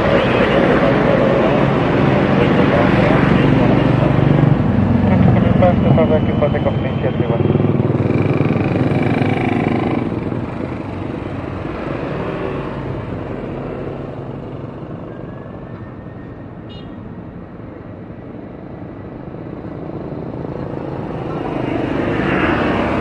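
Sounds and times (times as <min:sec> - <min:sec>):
jet engines at taxi power: 0:00.0 - 0:09.0.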